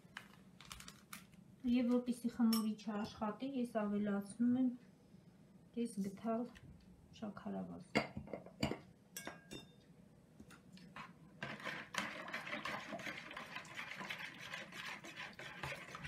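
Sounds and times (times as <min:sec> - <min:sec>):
metal spoon stirring in plastic bowl: 0:11.0 - 0:16.0.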